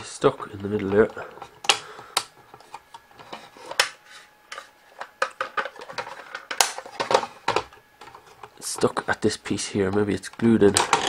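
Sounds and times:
plastic parts clicking: 9.9s - 11.0s.

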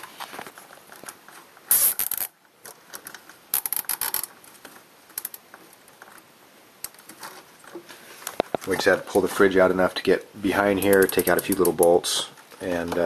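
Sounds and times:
cable tie ratchet clicking: 10.8s - 11.9s.

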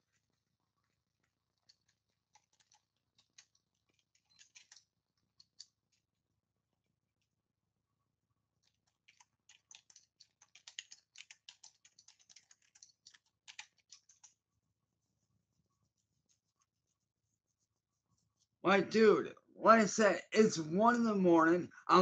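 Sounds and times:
keyboard typing: 8.8s - 14.3s.

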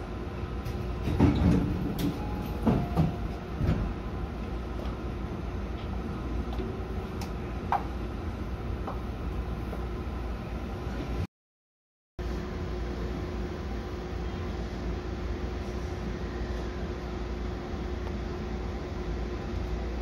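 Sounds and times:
train cab hum: 0.0s - 11.3s
clunks and knocks: 1.0s - 4.0s.

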